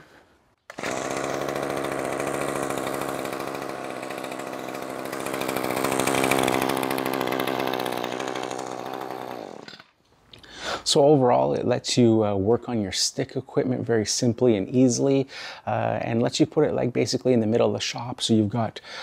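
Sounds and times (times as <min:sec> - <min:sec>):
string trimmer engine running: 0:00.7 - 0:09.9.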